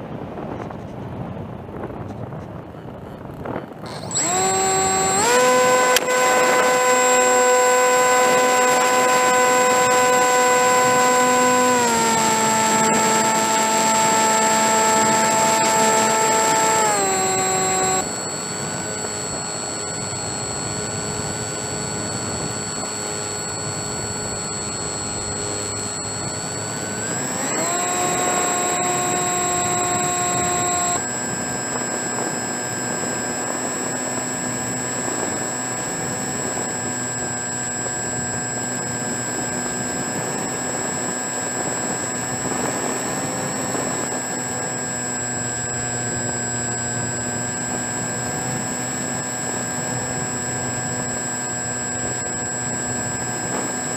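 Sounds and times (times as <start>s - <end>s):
model airplane motor whining: 1.9s - 53.9s.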